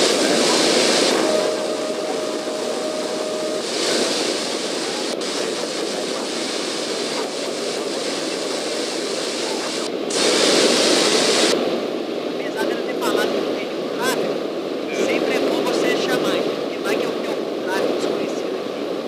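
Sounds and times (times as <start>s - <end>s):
thin steady tone: 0.0s - 8.4s
propeller plane engine drone: 0.0s - 12.5s
airflow rush: 0.0s - 19.0s.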